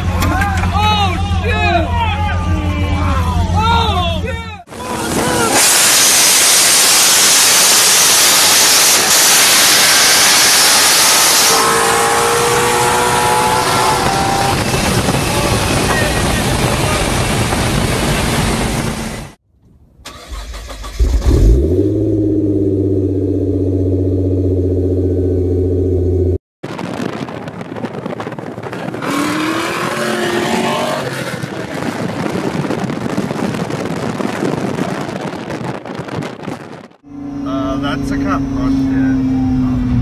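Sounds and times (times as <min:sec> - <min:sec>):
car and road noise: 0:00.0 - 0:40.0
car engine revving: 0:04.7 - 0:19.4, 0:20.2 - 0:26.4, 0:28.1 - 0:33.2.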